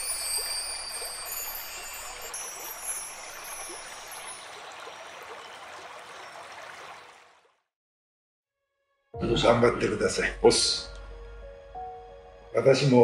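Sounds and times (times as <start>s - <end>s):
high glittering chime tones: 0.0s - 4.7s.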